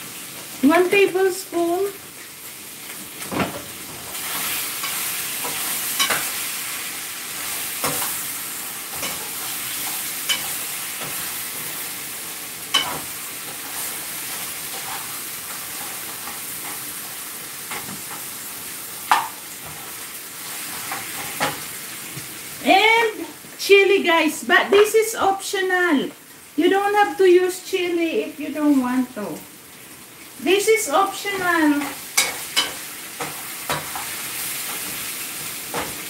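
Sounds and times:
ribs sizzling in a frying pan: 0:00.0 - 0:36.0
metal spoon scraping a pan: 0:04.2 - 0:06.5, 0:08.9 - 0:11.8, 0:12.7 - 0:16.8, 0:31.8 - 0:36.0.

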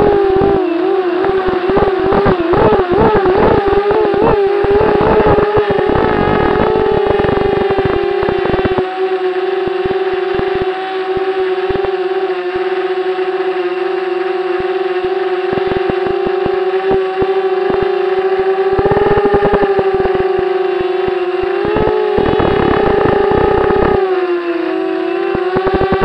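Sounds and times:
crackling bursts: 0:00.0 - 0:08.9, 0:09.6 - 0:12.0, 0:15.4 - 0:24.0, 0:25.3 - 0:26.0
aircraft motor droning whine: 0:00.0 - 0:26.0.

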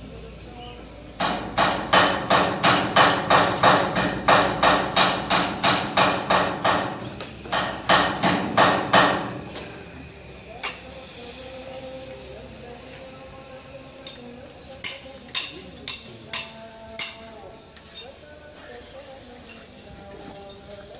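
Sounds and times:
hammer blows on truck bodywork: 0:01.2 - 0:09.8, 0:14.8 - 0:17.4.

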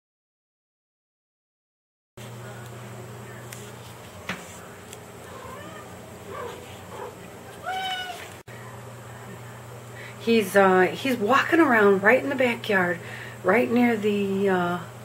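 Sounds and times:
steady low hum: 0:02.2 - 0:15.0
cat meowing: 0:05.3 - 0:06.6, 0:07.6 - 0:08.4.

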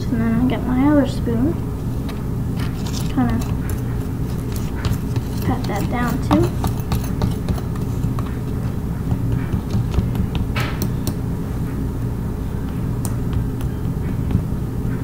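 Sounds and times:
steady low hum: 0:00.0 - 0:15.0
spoon scraping damp dirt: 0:02.6 - 0:08.6.

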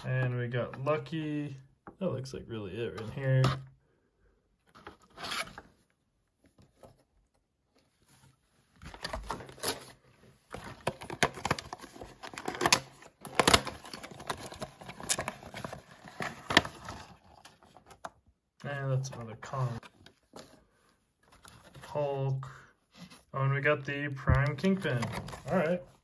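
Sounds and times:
cardboard rustle: 0:07.8 - 0:18.1.

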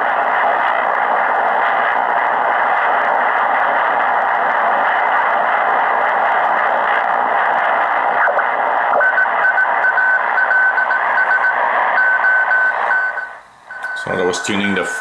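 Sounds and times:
radio static hiss: 0:00.0 - 0:15.0
radio tuning clicks: 0:00.0 - 0:15.0
morse code tone: 0:09.0 - 0:14.7.

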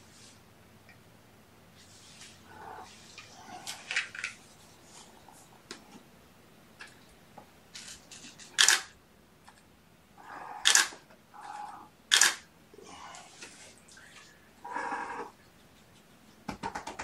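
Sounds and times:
camera shutter clicks: 0:08.6 - 0:08.9, 0:12.1 - 0:12.4.

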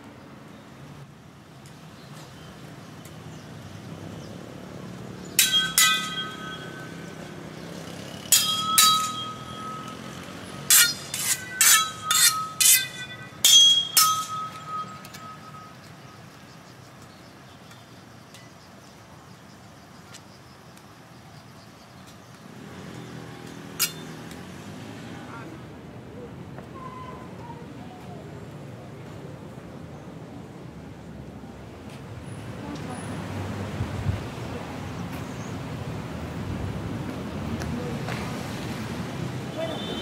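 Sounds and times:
street traffic hum: 0:00.0 - 0:40.0
sharp metallic clinks: 0:05.2 - 0:16.2, 0:23.7 - 0:24.3.

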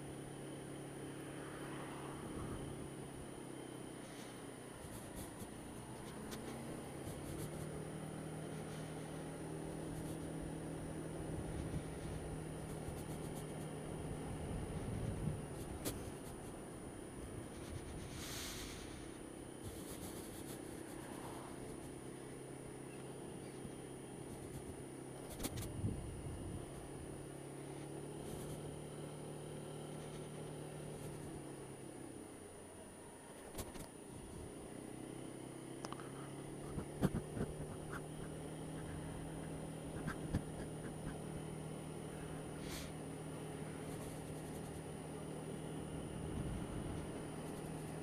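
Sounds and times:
road and wind noise: 0:00.0 - 0:48.0
scooter engine running: 0:00.0 - 0:48.0
rush of hiss: 0:18.1 - 0:19.1.

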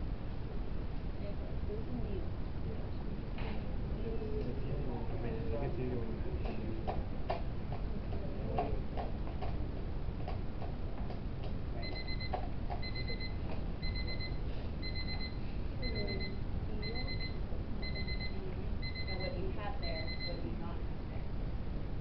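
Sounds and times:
room noise: 0:00.0 - 0:22.0
timer alarm beeping: 0:11.8 - 0:20.4.

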